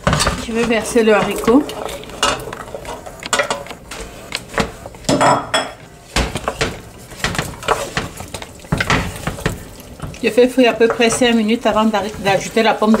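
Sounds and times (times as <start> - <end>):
wooden spatula scraping a pot: 0.0 - 5.1, 6.1 - 13.0.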